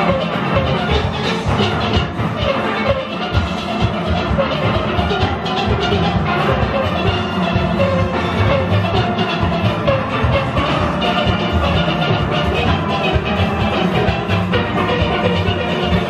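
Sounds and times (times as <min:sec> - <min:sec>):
steady drum beat: 0:00.0 - 0:16.0
steel pans playing: 0:00.0 - 0:16.0.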